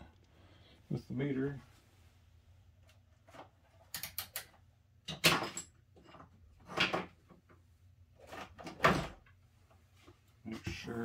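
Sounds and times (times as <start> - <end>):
small clicks: 3.9 - 4.6.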